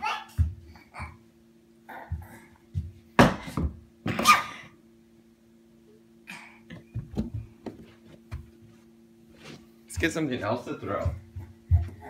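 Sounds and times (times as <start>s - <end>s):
toddler babbling: 0.0s - 1.2s, 1.9s - 2.6s
faint steady hum: 0.0s - 12.0s.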